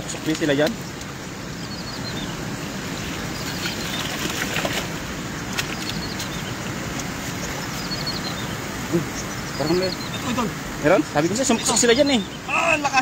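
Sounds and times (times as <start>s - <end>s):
steady rushing outdoor noise: 0.0s - 13.0s
muddy water sloshing and splashing: 2.6s - 8.0s.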